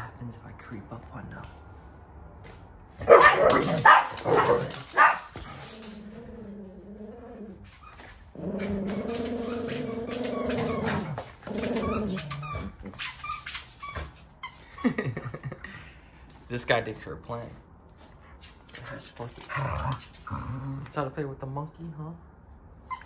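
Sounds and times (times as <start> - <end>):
dogs barking sharply: 3.0 - 5.6
dogs growling: 3.0 - 13.0, 19.3 - 20.9.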